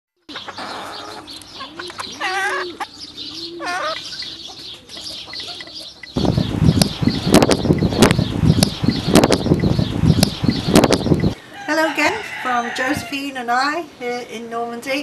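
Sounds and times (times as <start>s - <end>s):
chickens clucking: 0.3s - 13.3s
drawn-out hen calls: 0.3s - 13.7s
wind rumble on microphone: 6.2s - 11.4s.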